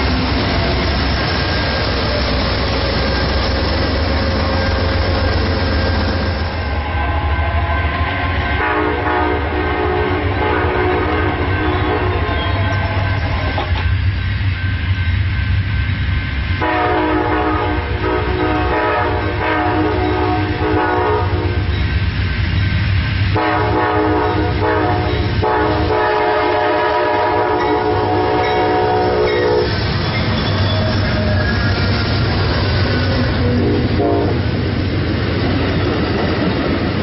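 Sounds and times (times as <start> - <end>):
train rumbling: 0.0 - 37.0
train wheels rushing past: 0.0 - 37.0
train air horn blasts: 6.6 - 13.6, 16.6 - 21.7, 23.3 - 29.8, 33.2 - 34.6.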